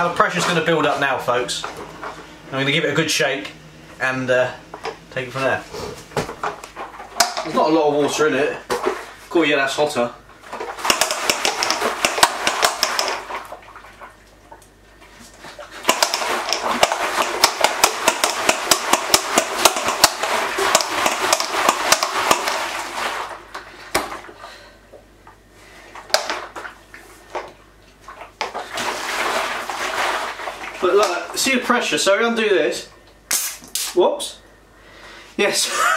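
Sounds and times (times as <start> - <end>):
water sloshing in shaken plastic barrel: 0.0 - 2.3, 4.8 - 24.6, 25.9 - 31.9
knocks on plastic barrel: 15.9 - 22.6.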